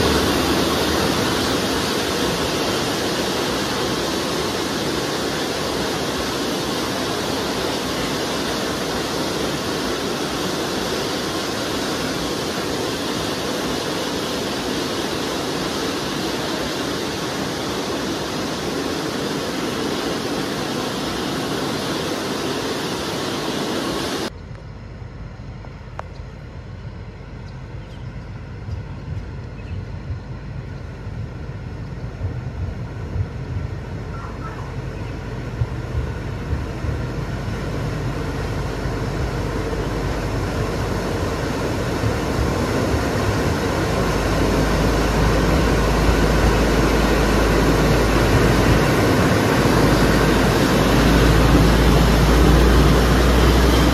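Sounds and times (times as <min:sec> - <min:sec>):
diesel locomotive rumble: 0:00.0 - 0:14.2, 0:24.3 - 0:53.9.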